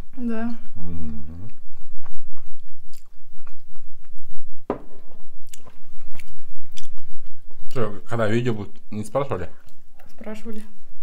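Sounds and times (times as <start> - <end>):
close-up chewing with lip smacks: 1.4 - 4.6, 5.4 - 7.8.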